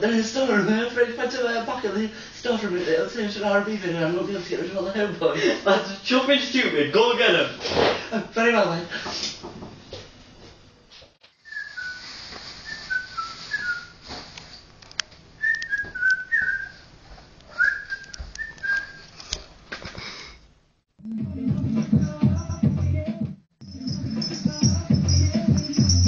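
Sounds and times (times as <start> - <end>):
person whistling a tune: 11.4 - 12.0, 12.6 - 14.0, 15.4 - 16.8, 17.5 - 19.0.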